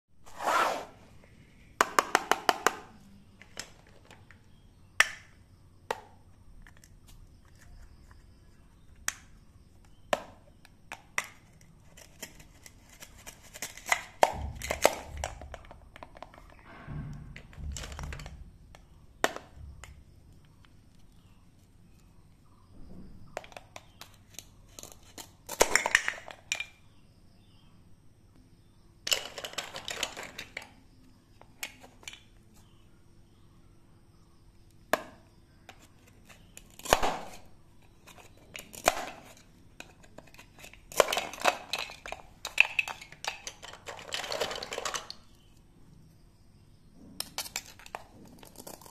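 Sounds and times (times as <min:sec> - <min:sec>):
plastic toys clicking and tapping: 0:01.8 - 0:04.4, 0:23.4 - 0:26.8, 0:29.0 - 0:30.8, 0:38.0 - 0:45.4.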